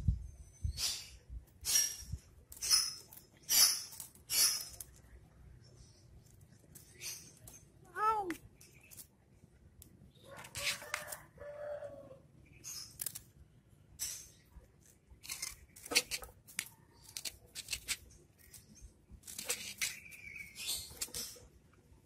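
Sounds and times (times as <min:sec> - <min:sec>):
kitten claws scratching: 0:14.9 - 0:21.5.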